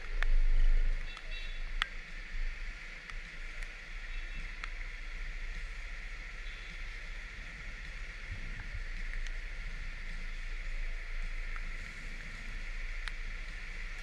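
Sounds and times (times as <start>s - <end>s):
rain and wet road hiss: 0.0s - 14.0s.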